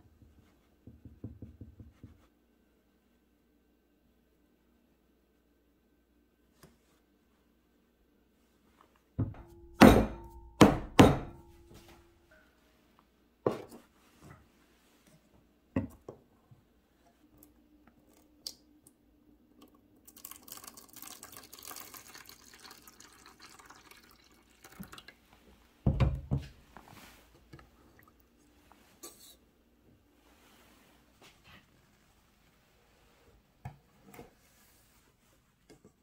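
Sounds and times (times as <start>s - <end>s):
metal pans clanking: 9.2s - 12.5s
water pouring from kettle: 20.0s - 25.2s.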